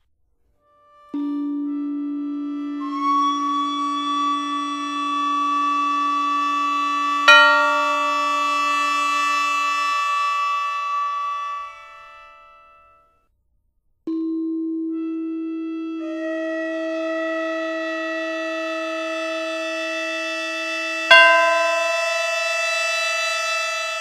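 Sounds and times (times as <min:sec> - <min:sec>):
slow synthesized hymn melody: 0:04.0 - 0:12.8, 0:21.1 - 0:23.6
sharp struck note: 0:07.3 - 0:09.7, 0:21.1 - 0:23.0.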